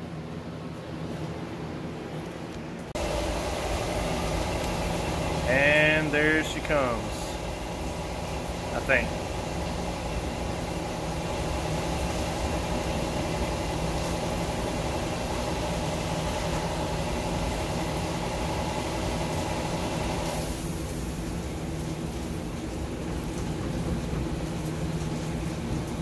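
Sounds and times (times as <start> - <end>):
motor humming: 3.0 - 20.6.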